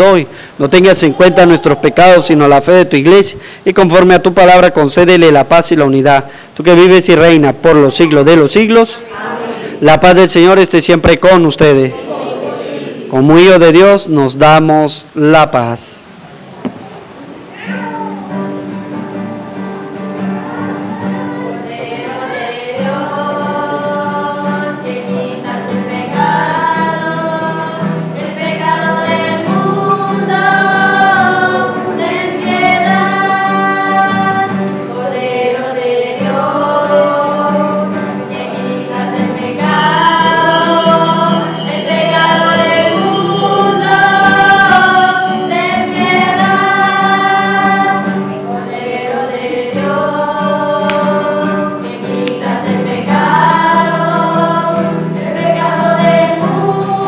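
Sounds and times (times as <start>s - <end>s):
hymn singing: 0.0s - 14.7s, 19.7s - 57.0s
bright high musical layer: 39.6s - 47.5s
instrumental accompaniment: 39.6s - 47.7s.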